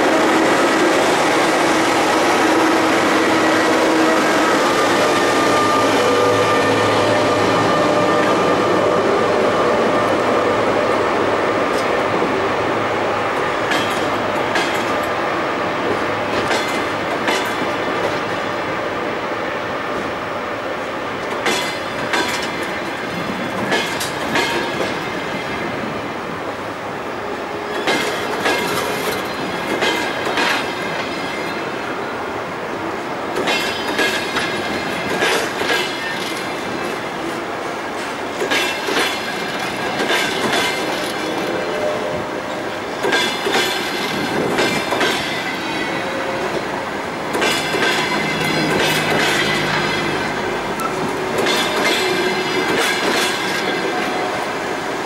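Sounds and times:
train rolling rumble: 0.0s - 55.0s
train wheels clacking over rail joints: 13.3s - 15.2s, 15.8s - 18.4s, 21.2s - 25.5s, 27.6s - 31.6s, 33.3s - 54.5s.

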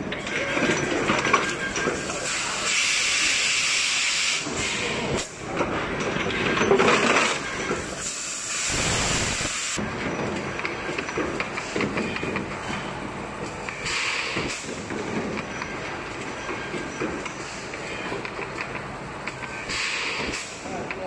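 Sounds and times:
compressed air hissing bursts: 8.0s - 9.8s.

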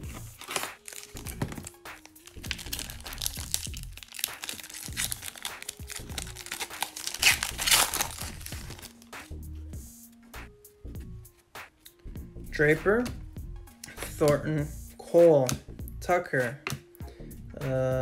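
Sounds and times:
foil wrapper crinkling: 0.0s - 9.2s
background music: 0.0s - 18.0s.

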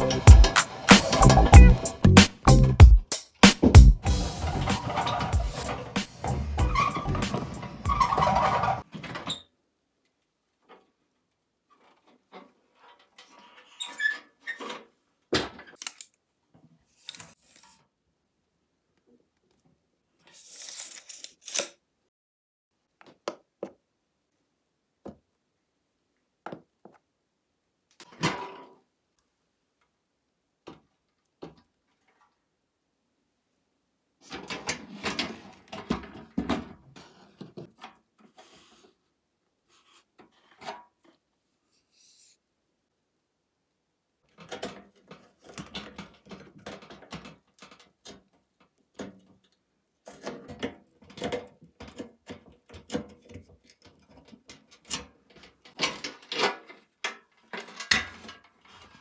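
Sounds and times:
metal toy truck clattering and scraping: 4.3s - 9.4s, 34.2s - 38.0s, 44.3s - 48.2s, 50.0s - 59.0s
clicks and knocks of tools: 44.3s - 58.6s.

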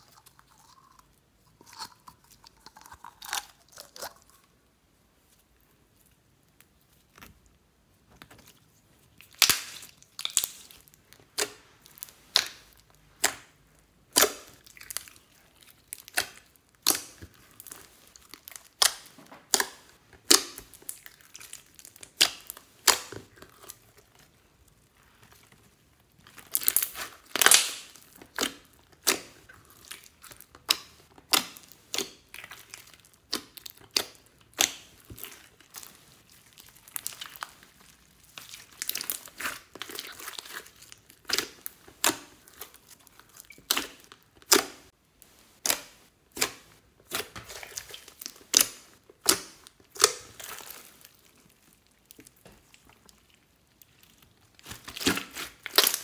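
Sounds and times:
slime squishing with sticky pops: 6.0s - 56.0s.

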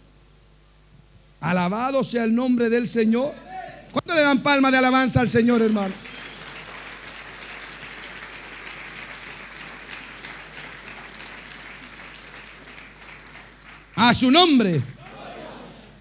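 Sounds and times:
crowd applauding: 5.2s - 16.0s.

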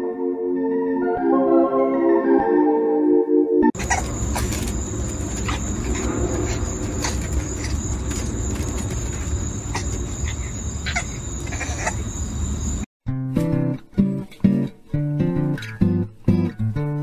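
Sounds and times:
steady outdoor noise: 3.8s - 12.9s.

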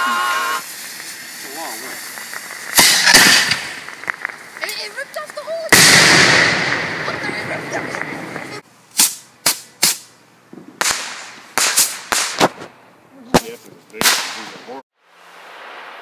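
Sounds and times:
soft hiss: 0.0s - 5.8s
fireworks cracking: 0.0s - 16.0s.

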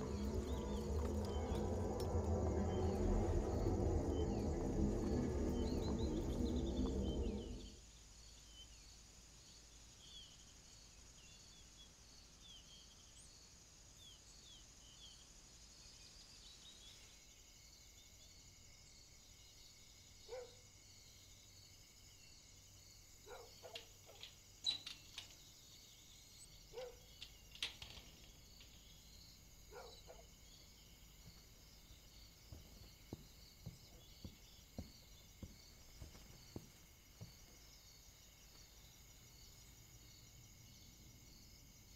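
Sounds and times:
insects chirring: 0.0s - 13.8s, 14.4s - 41.9s
soft footsteps: 31.2s - 37.9s.

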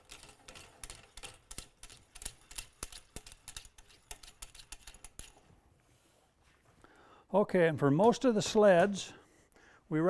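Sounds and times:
sharp metal clicks: 0.0s - 5.4s.

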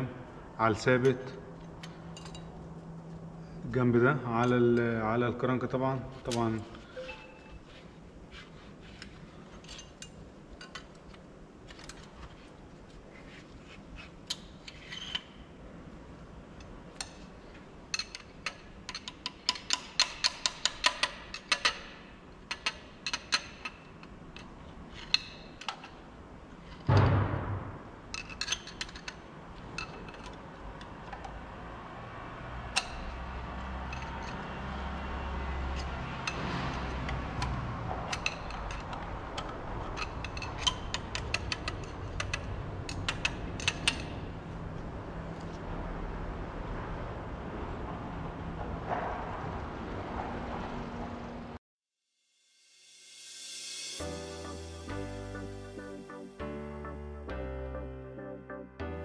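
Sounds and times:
metal tool clicking and tapping: 17.9s - 21.9s, 22.5s - 25.9s, 38.1s - 44.2s
loud knock: 26.9s - 28.0s.

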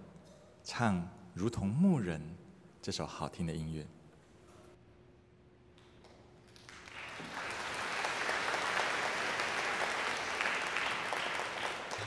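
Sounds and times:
audience applause: 6.6s - 12.0s.

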